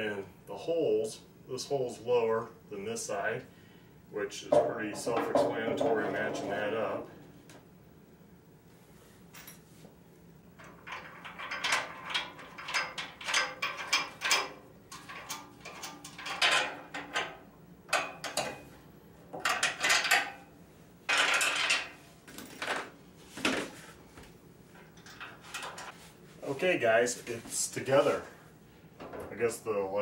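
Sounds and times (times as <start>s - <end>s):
metal clinks and rattles: 10.6s - 17.3s.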